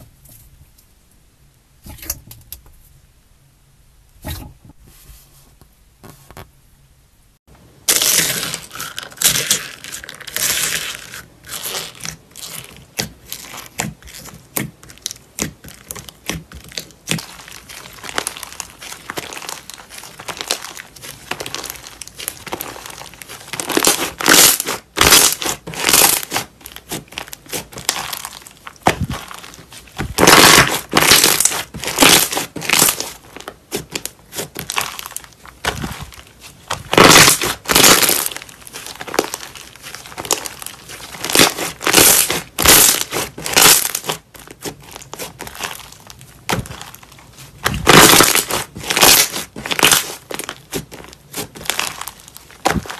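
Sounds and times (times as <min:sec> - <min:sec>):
slime crackling and popping: 0:07.9 - 0:52.9.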